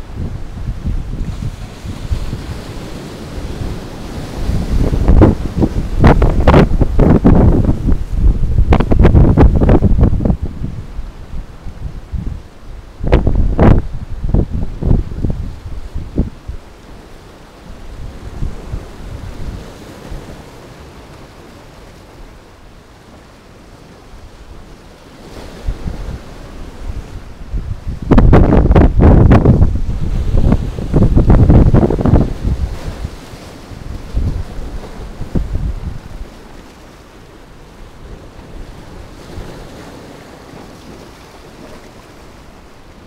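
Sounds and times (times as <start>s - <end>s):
surf breaking on rocks: 0.0s - 10.6s, 25.2s - 42.8s
wind on microphone: 0.0s - 20.5s, 24.2s - 43.0s.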